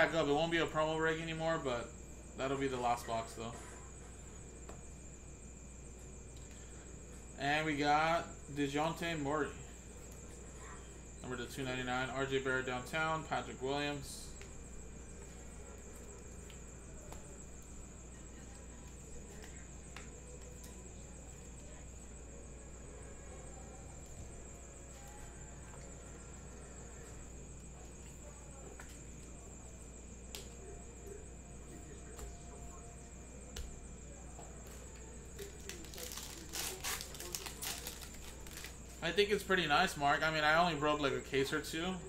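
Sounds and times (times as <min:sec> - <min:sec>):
electrical hum: 0:00.0 - 0:42.0
cards and wrapper rustling: 0:35.4 - 0:39.0.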